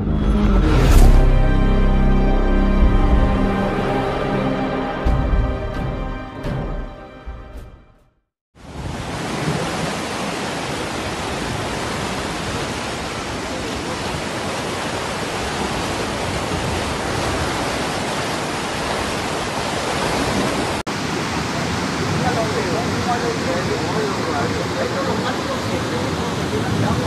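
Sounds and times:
floodwater roaring: 0:08.6 - 0:27.0.

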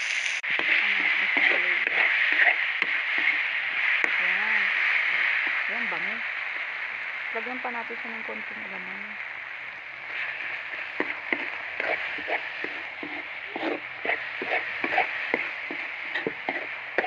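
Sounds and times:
onions sizzling in a wok: 0:00.0 - 0:17.0
spatula scraping a pan: 0:00.6 - 0:04.1, 0:10.1 - 0:17.0.

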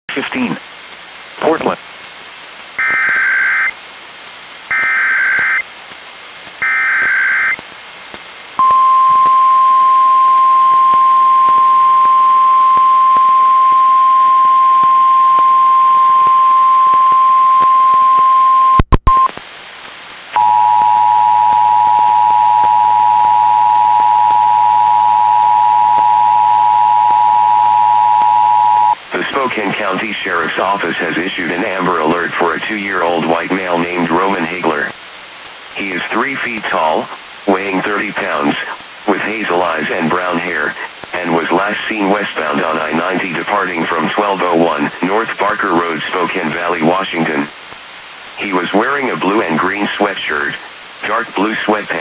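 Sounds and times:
steady warning alarm tone: 0:02.8 - 0:03.8, 0:04.7 - 0:05.6, 0:06.6 - 0:07.6, 0:08.6 - 0:18.8, 0:20.4 - 0:29.0.

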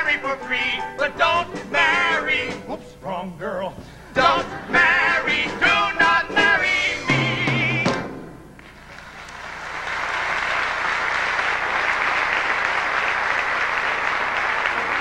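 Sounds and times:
person singing: 0:00.0 - 0:08.1
audience applauding: 0:08.6 - 0:15.0.

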